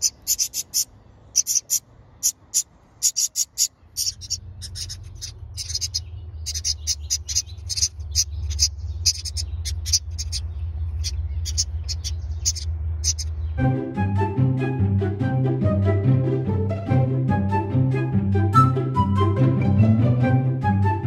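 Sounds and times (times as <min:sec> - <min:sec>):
nestling birds cheeping: 0:00.0 - 0:13.8
steady low hum: 0:00.0 - 0:13.9.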